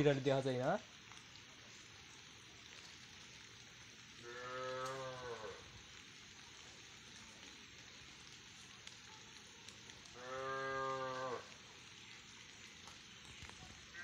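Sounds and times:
faint steady hiss: 0.0s - 14.0s
cow mooing: 4.2s - 5.6s, 10.2s - 11.5s.

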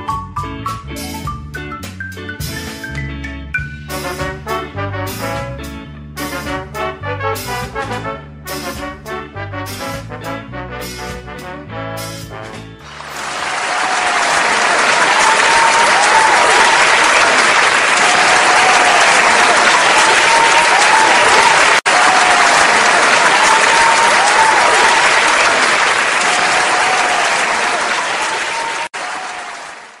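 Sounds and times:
audience applauding: 12.8s - 30.0s
voices cheering: 12.9s - 30.0s.

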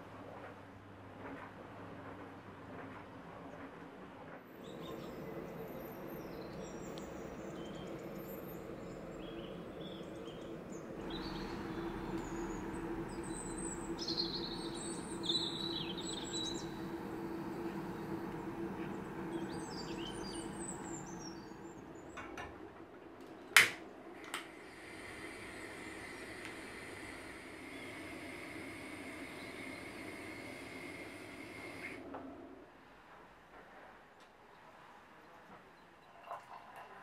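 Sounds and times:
small birds chirping: 4.5s - 22.3s
steady low hum: 4.5s - 33.1s
gas stove burner clicks: 23.6s - 24.5s.

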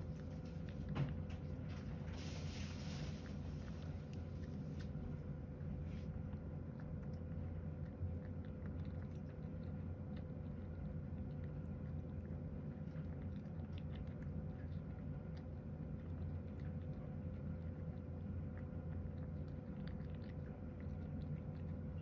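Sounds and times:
cat chewing food: 0.0s - 22.0s
steady low hum: 0.0s - 22.0s.

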